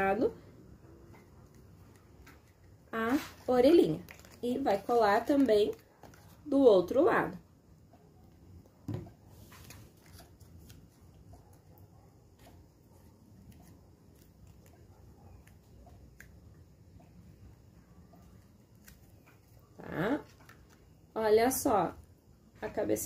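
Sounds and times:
paper and cardboard rustling: 1.8 - 6.5, 9.2 - 11.7.

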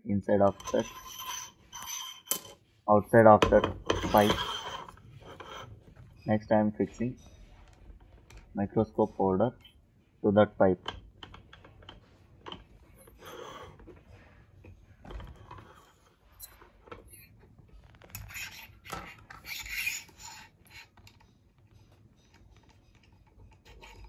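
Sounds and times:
scraping and rubbing on metal pole: 0.3 - 9.7, 10.7 - 24.0
small clicks and knocks: 10.8 - 14.0.

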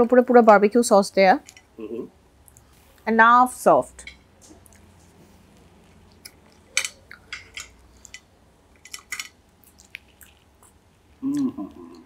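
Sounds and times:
cutlery scraping and clinking on plate: 6.7 - 9.4.

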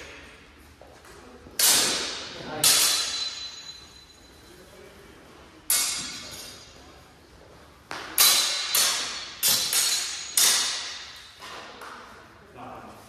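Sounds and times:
steel swords clashing: 1.6 - 4.4, 5.7 - 6.8, 8.2 - 11.6.

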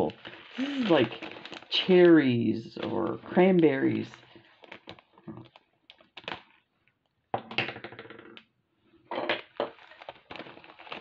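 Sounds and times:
plastic bag crinkling: 0.0 - 6.7, 9.6 - 11.0.

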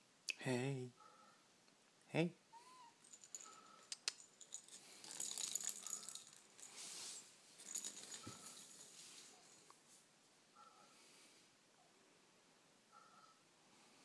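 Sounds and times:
toy ball rattling on tile floor: 3.0 - 6.8, 7.6 - 9.6.

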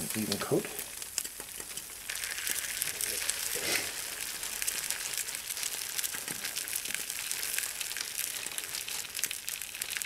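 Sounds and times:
egg sizzling in frying pan: 0.0 - 10.0.

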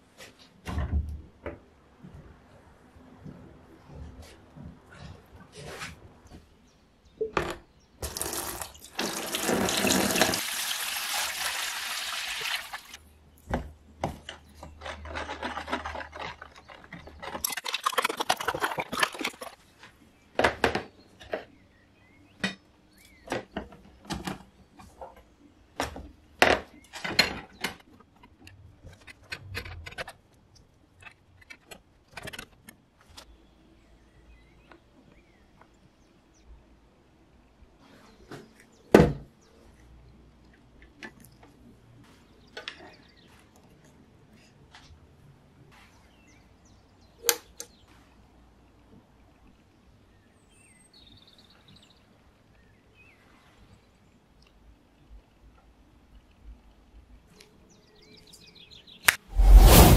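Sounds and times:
water pouring into plastic tub: 8.0 - 13.0.

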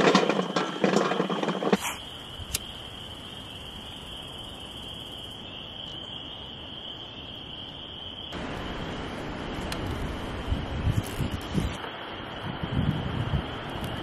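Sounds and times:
wind rushing on microphone: 9.3 - 14.0.

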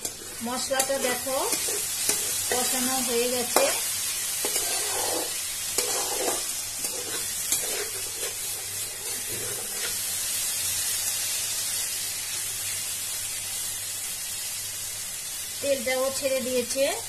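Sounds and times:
spatula tapping pan: 0.0 - 2.8
spatula scraping wok: 0.0 - 10.6
food sizzling in oil: 0.0 - 17.0.

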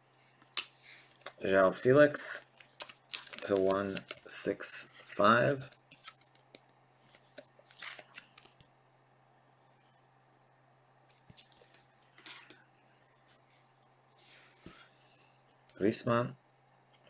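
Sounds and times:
faint steady hum: 0.0 - 17.0
plastic sleeve crinkling: 2.5 - 4.3.

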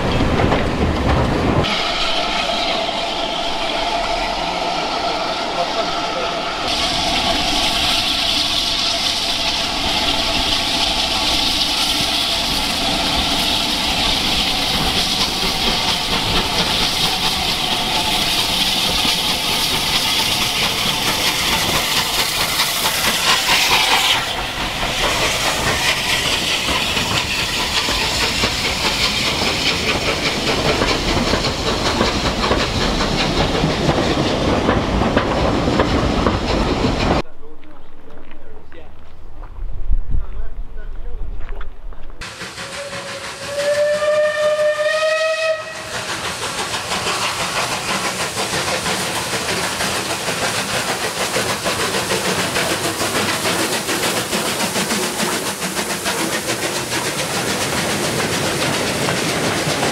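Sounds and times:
train wheels clattering over rail joints: 0.0 - 1.7, 6.7 - 39.6, 45.7 - 59.9
loud steam hiss: 1.5 - 37.2, 42.2 - 59.9.

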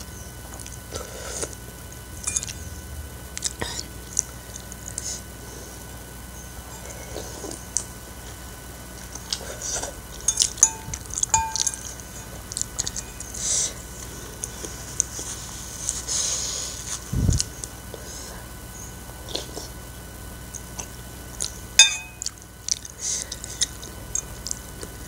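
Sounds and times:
metal spoon clinking on bowl: 2.3 - 2.6, 10.3 - 11.9, 21.8 - 22.3
wet chewing and smacking: 8.9 - 13.4, 22.2 - 25.0.

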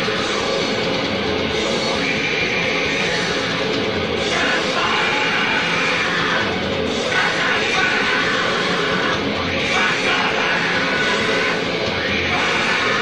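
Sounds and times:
hardcore punk with noise: 0.0 - 13.0.

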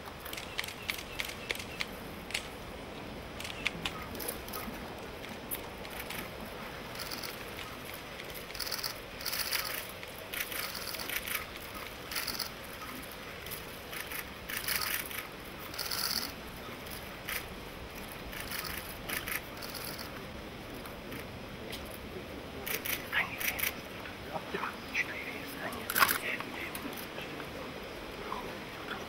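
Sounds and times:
steady background hiss: 0.0 - 29.0
camera shutters clicking: 0.2 - 2.5, 3.4 - 4.7, 18.3 - 20.1, 22.7 - 23.8, 25.8 - 27.1.

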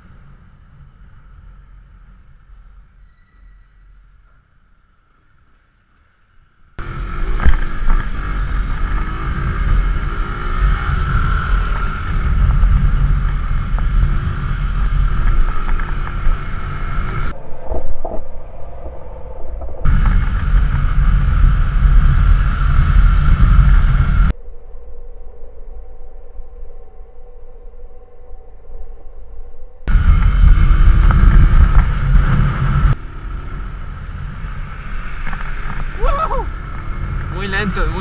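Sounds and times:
motorcycle engine running: 6.8 - 17.3, 19.9 - 24.3, 29.9 - 38.0
wind rushing over microphone: 6.8 - 24.3, 29.8 - 38.0.

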